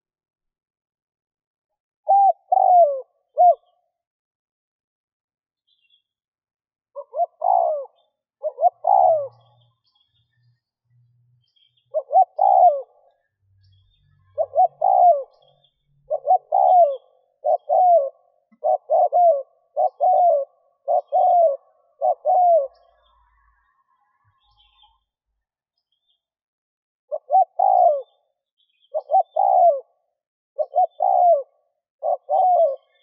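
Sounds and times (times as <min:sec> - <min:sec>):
dove cooing: 0:02.1 - 0:03.9, 0:07.0 - 0:09.6, 0:11.9 - 0:13.1, 0:14.3 - 0:15.5, 0:16.1 - 0:23.1, 0:27.1 - 0:28.3, 0:28.9 - 0:33.0.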